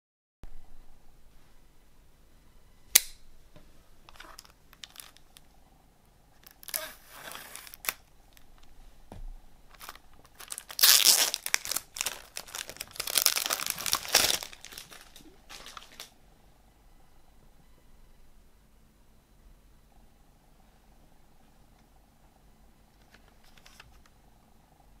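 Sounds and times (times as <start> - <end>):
sharp click: 2.9 - 3.2
plastic film crinkling and tearing: 4.1 - 5.5, 6.4 - 8.4, 9.7 - 16.1.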